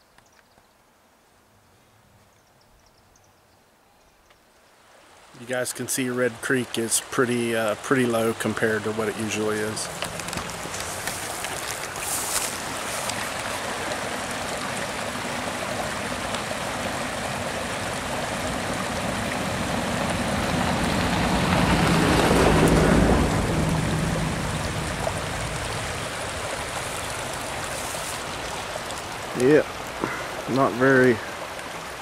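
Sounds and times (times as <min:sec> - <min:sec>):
creek water trickling over rocks: 0:04.7 - 0:32.0
low rumble: 0:19.1 - 0:27.4.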